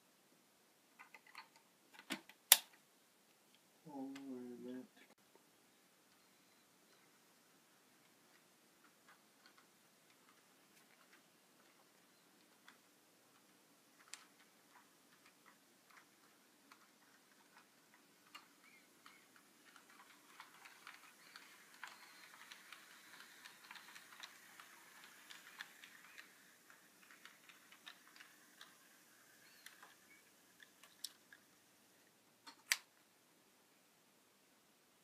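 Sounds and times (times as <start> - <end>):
model train clicking on track: 8.0 - 31.6.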